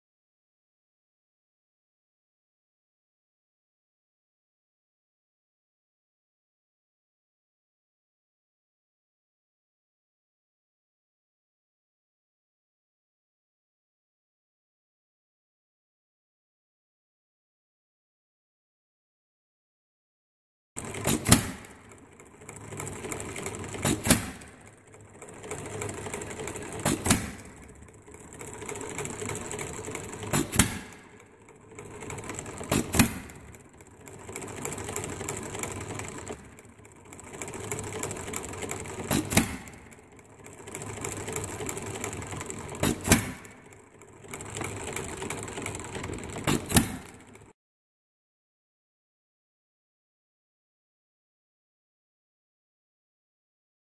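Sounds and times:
engine valve gear clatter: 0:20.8 - 0:47.5.

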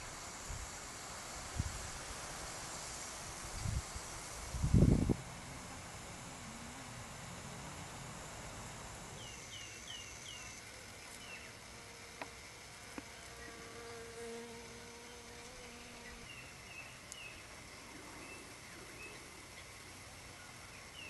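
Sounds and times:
faint outdoor hiss: 0:00.0 - 0:21.0
bee buzzing: 0:02.6 - 0:19.4
small birds chirping: 0:09.2 - 0:11.6, 0:15.1 - 0:21.0.

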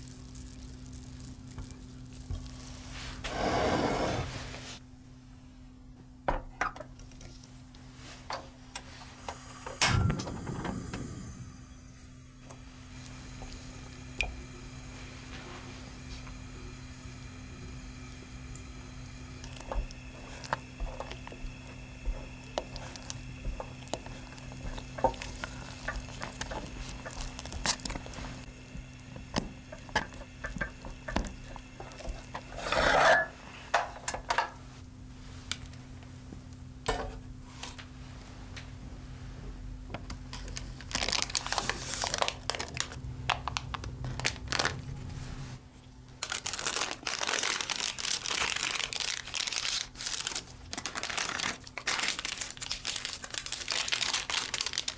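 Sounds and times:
steady low hum: 0:00.0 - 0:46.2
parchment paper crinkling: 0:19.4 - 0:29.2, 0:40.3 - 0:45.0, 0:46.2 - 0:54.9
spatula stirring thick cream: 0:19.4 - 0:32.9.

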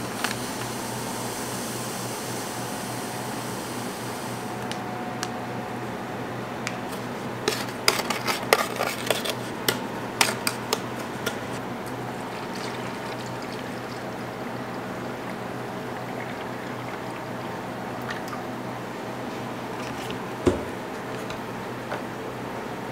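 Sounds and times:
liquid pouring into plastic pitcher: 0:12.1 - 0:18.5.

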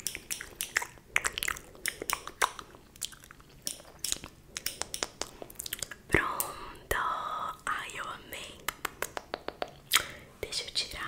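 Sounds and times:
wet mouth clicks and smacks: 0:00.0 - 0:06.5, 0:08.6 - 0:10.2.

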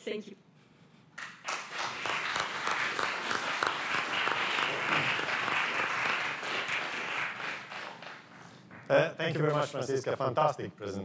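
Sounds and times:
audience applause: 0:01.2 - 0:08.9.

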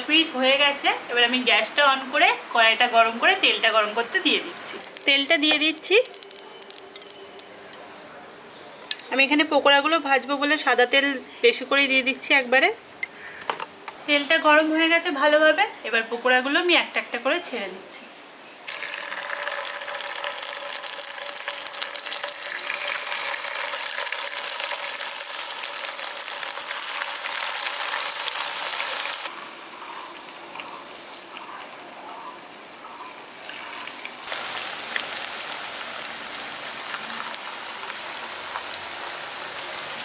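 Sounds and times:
batter deep-frying in oil: 0:00.0 - 0:07.9, 0:18.7 - 0:40.0.

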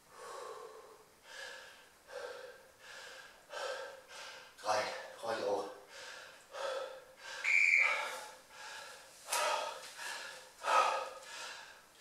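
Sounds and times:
man breathing hard: 0:00.0 - 0:05.2, 0:05.8 - 0:12.0
breath whistle: 0:07.4 - 0:08.2.

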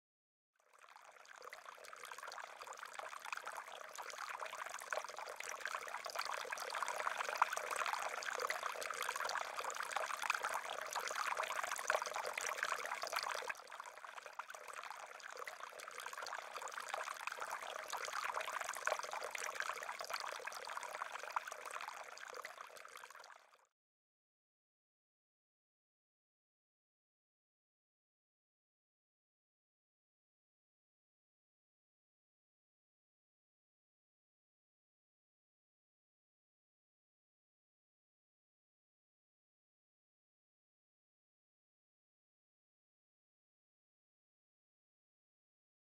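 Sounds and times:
fountain water trickling and splashing: 0:00.8 - 0:23.4.

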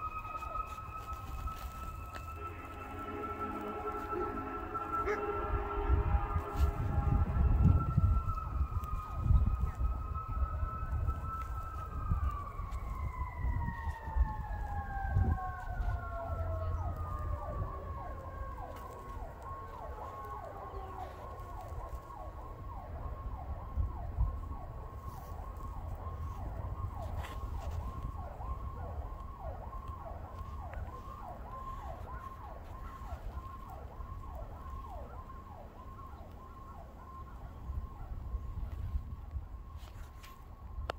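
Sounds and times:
low rumble: 0:00.0 - 0:10.5
siren wailing: 0:00.0 - 0:40.9
siren yelping: 0:00.0 - 0:40.9.

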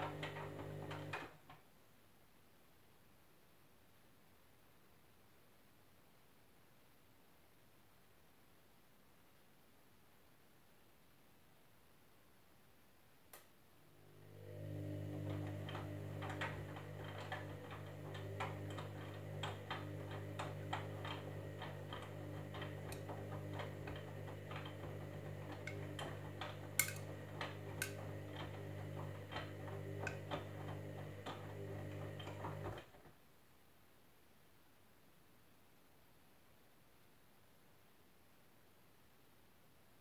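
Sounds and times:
washing machine motor hum: 0:00.0 - 0:01.4, 0:13.9 - 0:33.0
washing machine click: 0:15.2 - 0:32.7.

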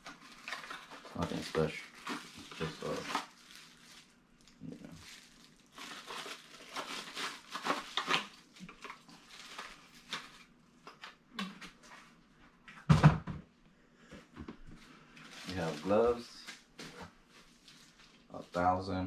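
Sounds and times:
packaging rustling and crinkling: 0:00.0 - 0:11.8, 0:14.6 - 0:18.8.

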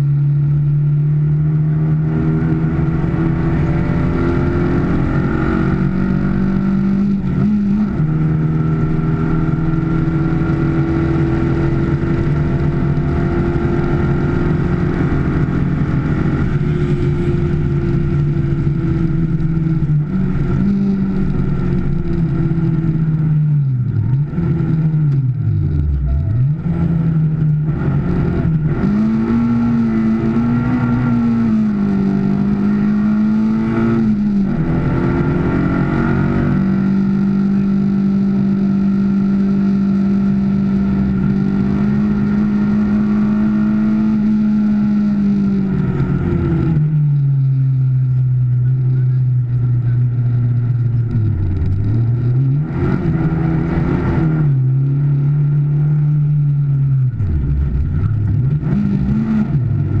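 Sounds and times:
car engine under load: 0:00.0 - 1:00.0.

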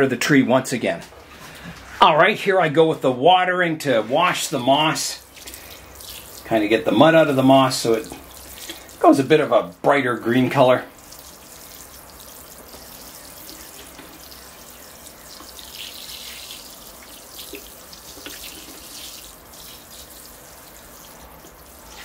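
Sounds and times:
water showering from watering can: 0:04.2 - 0:22.0
water drips: 0:05.1 - 0:22.0
water splashing into tray: 0:05.2 - 0:22.0.

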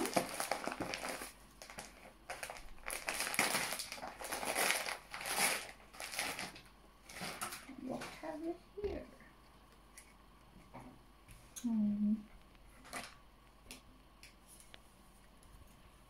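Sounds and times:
wrapping paper crinkling: 0:00.0 - 0:07.7.

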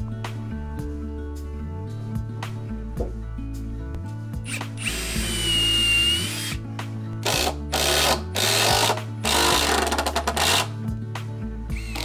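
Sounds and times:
impact driver whining: 0:04.5 - 0:06.6, 0:07.2 - 0:10.7, 0:11.8 - 0:12.0.

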